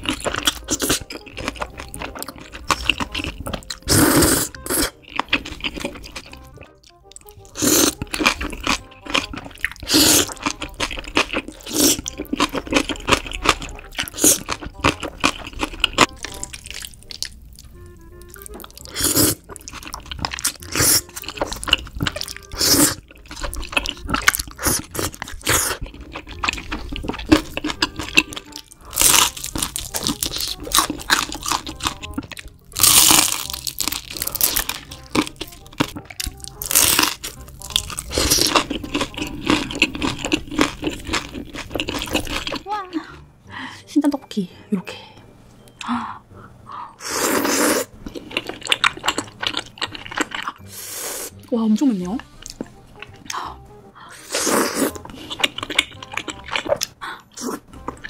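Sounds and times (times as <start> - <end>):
noodles slurped and chewed: 0.0 - 42.7, 47.0 - 51.5, 52.4 - 58.0
background music: 0.0 - 58.0
loud crunchy bites: 7.4 - 17.4, 18.4 - 42.6.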